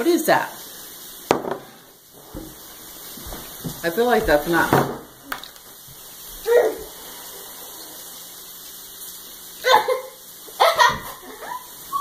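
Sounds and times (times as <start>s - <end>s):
laugh-like bursts: 9.6s - 12.0s.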